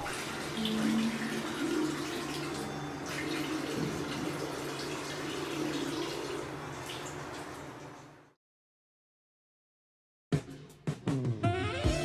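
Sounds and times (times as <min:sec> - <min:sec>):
tap running into sink: 0:00.0 - 0:08.0.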